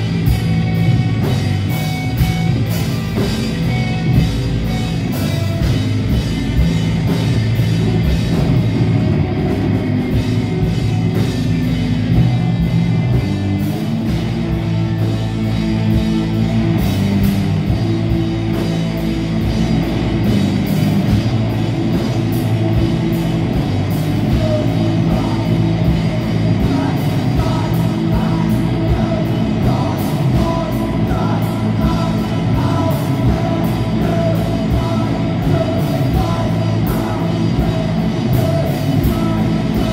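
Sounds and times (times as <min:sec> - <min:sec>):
bass guitar: 0:00.0 - 0:39.9
distorted electric guitars: 0:00.0 - 0:39.9
steady drum beat: 0:00.0 - 0:39.9
person singing: 0:24.2 - 0:39.9.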